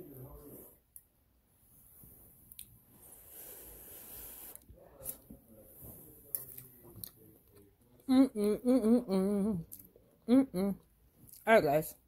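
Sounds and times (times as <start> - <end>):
woman humming mmm: 8.1 - 9.7, 10.3 - 10.8.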